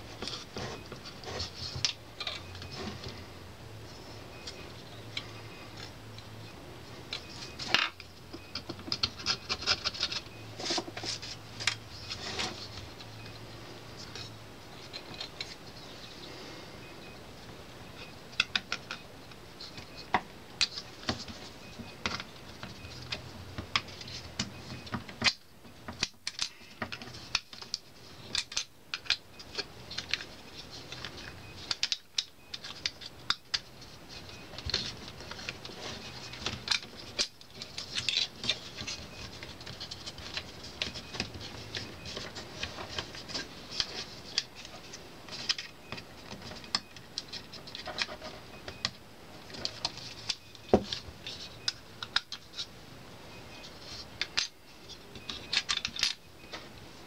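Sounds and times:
small parts clicking and tapping: 7.1s - 11.8s, 18.0s - 52.7s, 53.6s - 56.6s.

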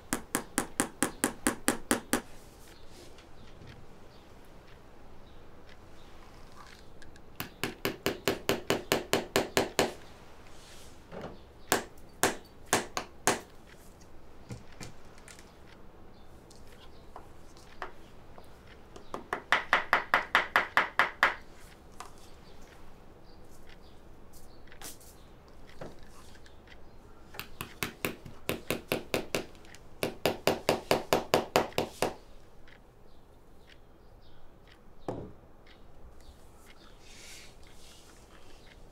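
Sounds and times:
hand tool tapping on shoe: 0.1s - 2.3s, 7.4s - 10.0s, 17.2s - 21.4s, 27.4s - 32.2s.

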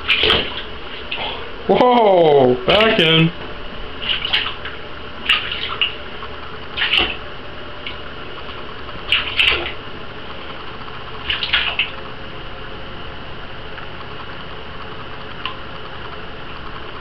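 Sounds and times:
light water splashes: 0.0s - 1.2s, 4.0s - 6.0s, 6.8s - 7.2s, 9.1s - 9.8s
low background hum: 0.0s - 17.0s.

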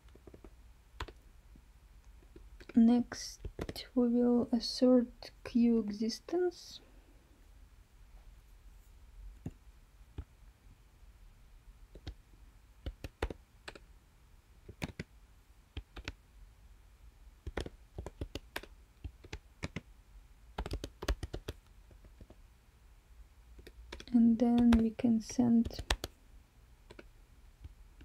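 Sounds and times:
computer keyboard typing: 0.1s - 1.2s, 3.4s - 3.8s, 12.0s - 12.2s, 12.8s - 13.8s, 14.7s - 15.1s, 15.8s - 16.2s, 17.4s - 19.9s, 20.6s - 22.4s, 23.6s - 26.2s, 26.9s - 27.1s.

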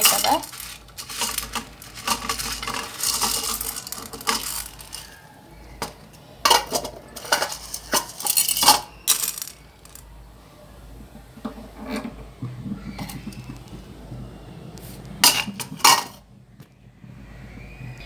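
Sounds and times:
grains rattling in pan: 0.0s - 10.1s, 15.2s - 16.2s.

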